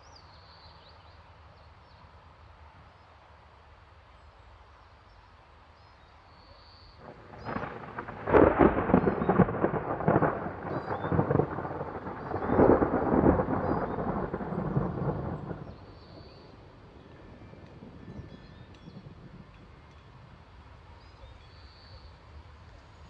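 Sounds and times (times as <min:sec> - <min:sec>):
thunder rumbling and crackling: 0:07.0 - 0:20.3.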